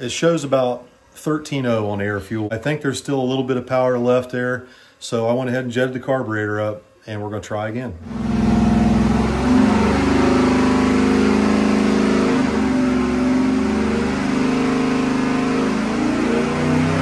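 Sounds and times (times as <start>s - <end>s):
engine running: 8.0s - 17.0s.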